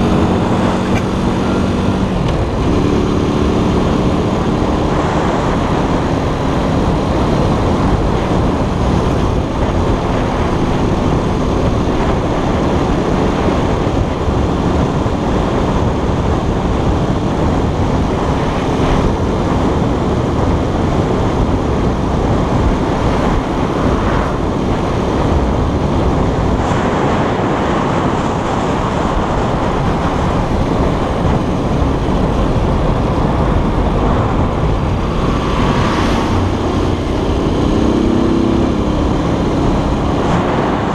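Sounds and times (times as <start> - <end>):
scooter engine running: 0.0 - 22.8
wind rushing over microphone: 0.0 - 40.9.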